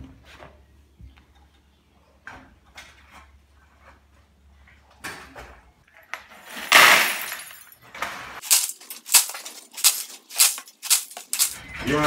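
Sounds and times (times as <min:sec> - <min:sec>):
metal scoop scraping: 0:06.4 - 0:07.6, 0:08.3 - 0:12.0
metallic clinks and rattles: 0:06.4 - 0:11.8.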